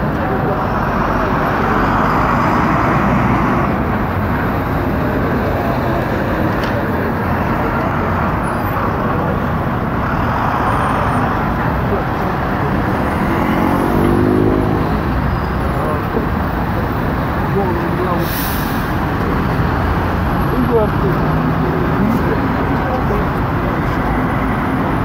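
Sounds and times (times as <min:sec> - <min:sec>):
city street traffic: 0:00.0 - 0:25.0
vehicle engine accelerating: 0:00.5 - 0:17.5.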